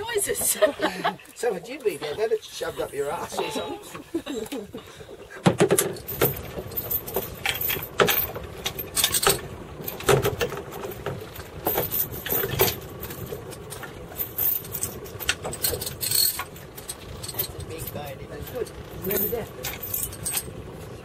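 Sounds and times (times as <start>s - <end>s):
hard objects knocking and rattling: 5.4s - 17.8s.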